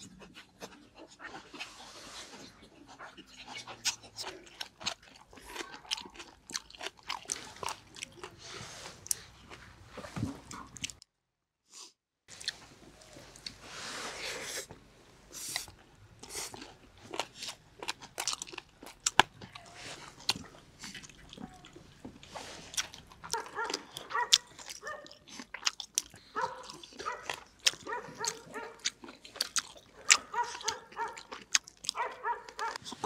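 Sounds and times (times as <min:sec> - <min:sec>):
chewing and crunching food: 0:00.0 - 0:11.1, 0:12.3 - 0:33.0.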